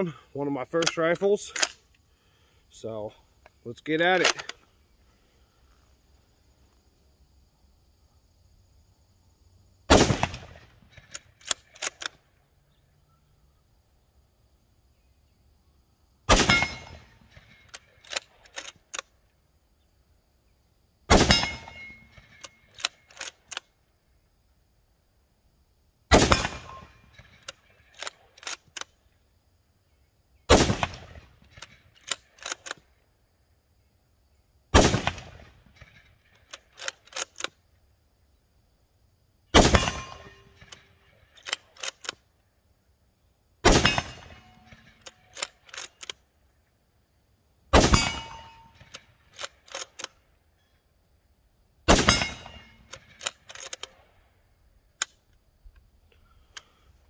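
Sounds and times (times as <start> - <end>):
rifle bolt metallic clicks: 0.7 - 2.0, 3.4 - 4.6, 11.0 - 12.2, 16.5 - 19.1, 21.3 - 23.8, 26.3 - 29.0, 31.4 - 33.0, 35.8 - 37.6, 39.7 - 42.3, 43.8 - 46.2, 48.0 - 50.2, 52.1 - 54.0, 55.0 - 55.9
rifle shots: 9.9 - 12.1, 16.3 - 18.6, 21.1 - 22.9, 26.1 - 28.3, 30.5 - 32.7, 34.7 - 36.0, 39.5 - 40.7, 43.6 - 45.9, 47.7 - 50.0, 51.9 - 54.0.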